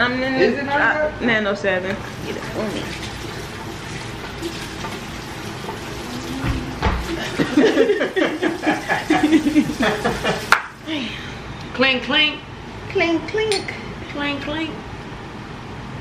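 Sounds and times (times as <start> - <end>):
liquor trickling into glasses: 2.0 - 10.9
glass clink: 13.5 - 13.8.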